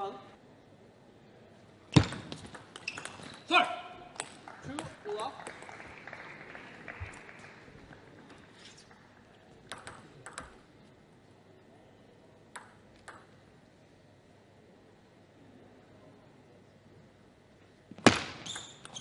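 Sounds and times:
table tennis ball clicking: 0:02.1 - 0:03.4, 0:09.7 - 0:10.6, 0:12.5 - 0:13.4, 0:18.5 - 0:19.0.

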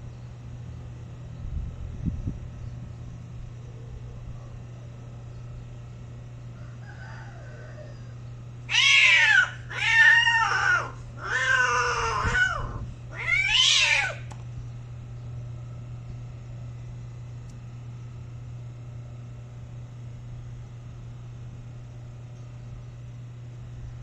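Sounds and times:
cat yowling: 0:08.7 - 0:14.3.

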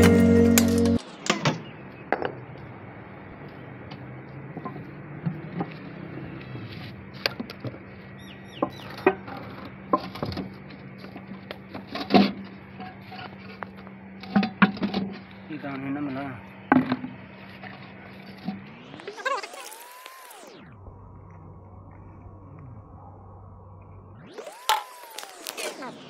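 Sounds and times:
steady low hum: 0:20.5 - 0:26.0.

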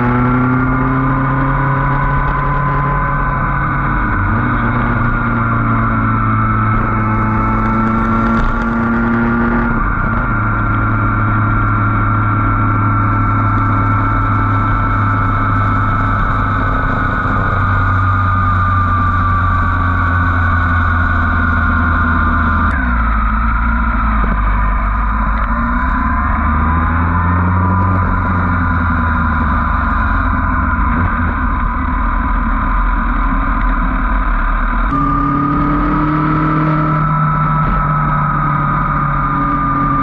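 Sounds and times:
motorcycle engine running: 0:00.0 - 0:40.0
wind and road noise: 0:00.0 - 0:40.0.

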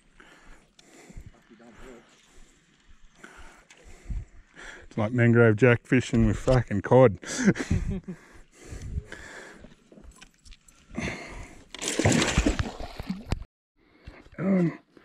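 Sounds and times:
water splashing and sloshing: 0:09.7 - 0:13.5.

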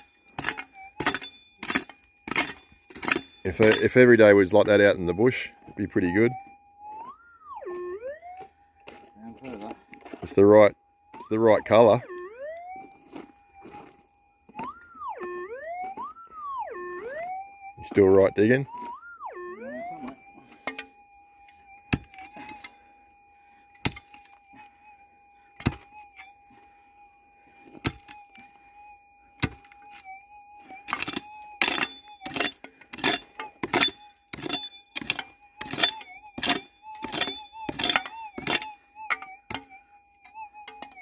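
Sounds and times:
pick striking stony ground: 0:00.0 - 0:04.3, 0:21.9 - 0:22.7, 0:23.8 - 0:24.3, 0:25.6 - 0:26.3, 0:27.7 - 0:28.5, 0:29.4 - 0:30.0, 0:30.8 - 0:39.8
metal detector steady tone: 0:23.6 - 0:41.0.

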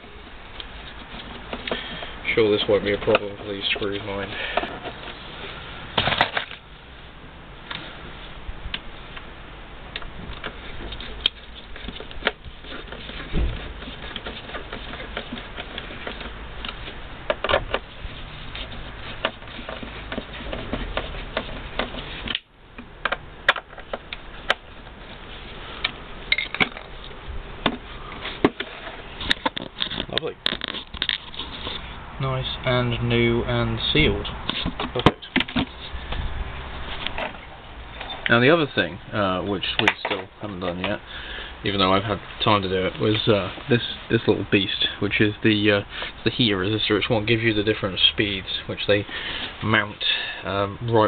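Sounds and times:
background hiss: 0:21.2 - 0:51.0.

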